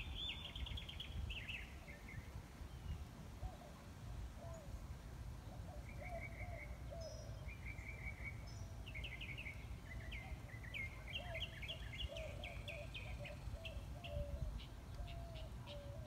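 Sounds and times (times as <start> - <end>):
low background noise: 0.0 - 16.0
birds trilling and chirping: 5.5 - 16.0.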